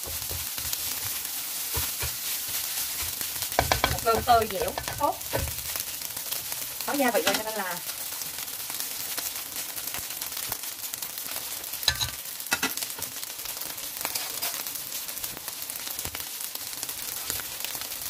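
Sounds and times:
rice sizzling in oil: 0.0 - 18.0
sharp knocks on a pan: 3.6 - 5.6.

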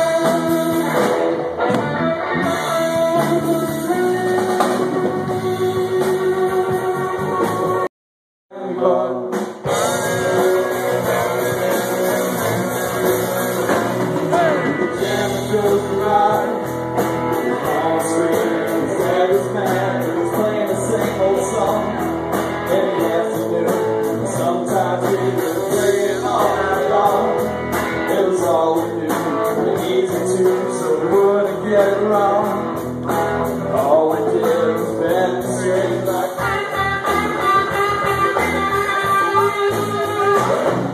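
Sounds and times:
live rock band playing: 0.0 - 7.9, 8.6 - 40.9
man singing: 2.5 - 6.8, 8.5 - 11.7, 14.2 - 32.8, 33.5 - 38.4.

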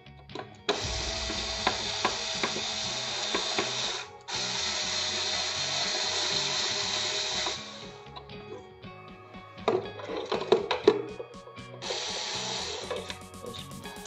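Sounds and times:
cordless drill driving screws: 11.8 - 13.0.

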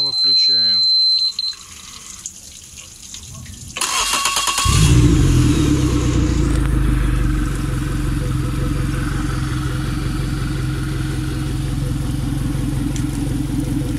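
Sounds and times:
outboard motor idling: 3.8 - 13.9.

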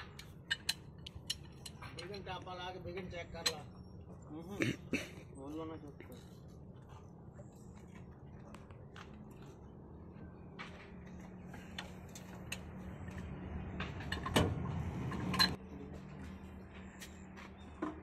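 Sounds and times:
metallic clicks and ticks: 0.2 - 2.1.

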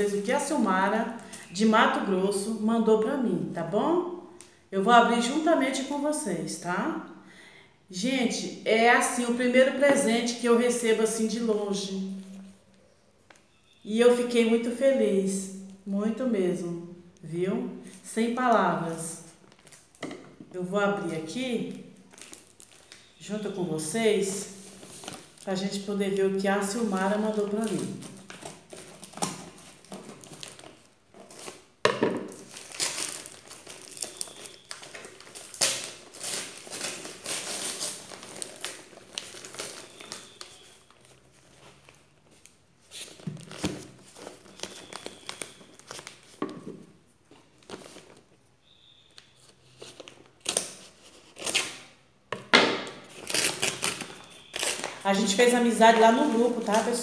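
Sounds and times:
paper crinkling and tearing: 24.4 - 25.9, 26.7 - 31.7, 32.3 - 46.4, 49.4 - 52.0, 53.0 - 57.0.

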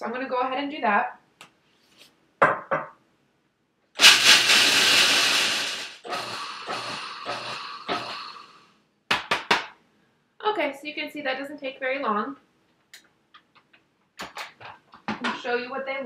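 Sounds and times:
food processor chopping almonds: 4.0 - 8.5.

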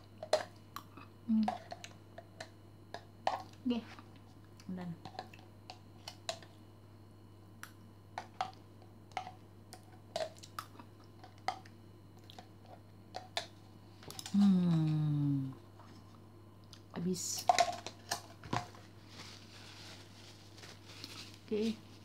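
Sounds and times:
person humming: 1.3 - 1.6, 14.3 - 15.6.

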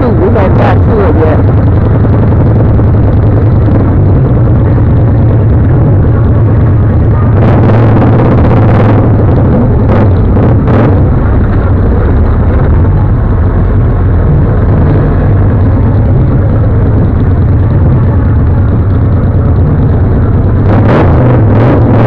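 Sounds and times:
motorcycle engines rumbling: 0.0 - 22.0.

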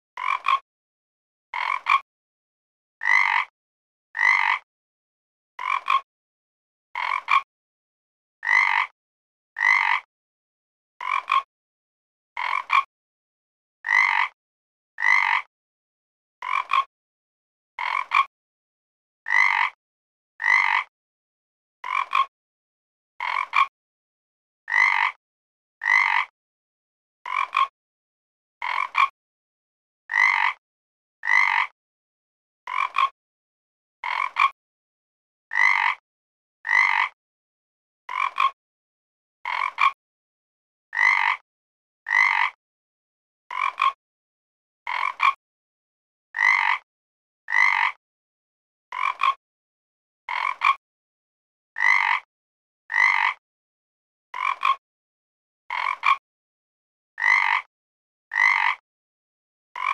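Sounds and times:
frog croaking: 0.2 - 0.6, 1.6 - 2.0, 3.0 - 3.5, 4.2 - 4.6, 5.6 - 6.0, 7.0 - 7.5, 8.4 - 8.9, 9.6 - 10.1, 11.0 - 11.5, 12.4 - 12.9, 13.8 - 14.4, 15.0 - 15.5, 16.4 - 16.9, 17.8 - 18.3, 19.3 - 19.8, 20.4 - 20.9, 21.8 - 22.3, 23.2 - 23.7, 24.7 - 25.2, 25.8 - 26.3, 27.3 - 27.7, 28.6 - 29.1, 30.1 - 30.6, 31.2 - 31.8, 32.7 - 33.1, 34.0 - 34.5, 35.5 - 36.0, 36.6 - 37.1, 38.1 - 38.5, 39.5 - 40.0, 40.9 - 41.4, 42.1 - 42.6, 43.5 - 44.0, 44.9 - 45.4, 46.4 - 46.8, 47.5 - 48.0, 48.9 - 49.4, 50.3 - 50.7, 51.8 - 52.3, 52.9 - 53.4, 54.4 - 54.8, 55.7 - 56.2, 57.2 - 57.6, 58.3 - 58.8.

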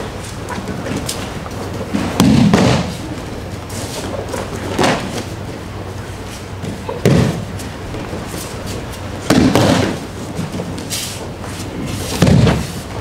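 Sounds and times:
bodies thudding on a padded mat: 2.0 - 3.0, 6.6 - 8.2, 9.2 - 10.9, 12.1 - 12.8.

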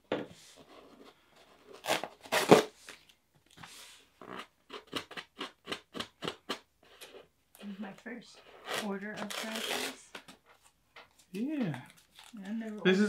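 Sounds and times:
tape tearing off box: 1.8 - 2.7, 8.6 - 10.3.

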